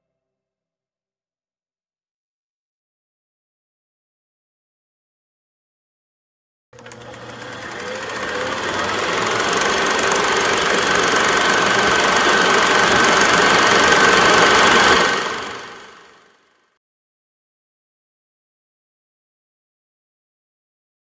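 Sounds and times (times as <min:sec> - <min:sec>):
film projector clattering: 0:06.8 - 0:16.2.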